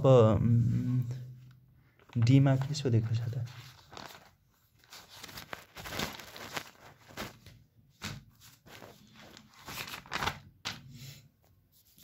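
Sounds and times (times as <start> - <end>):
paper pages rustling: 1.9 - 10.9.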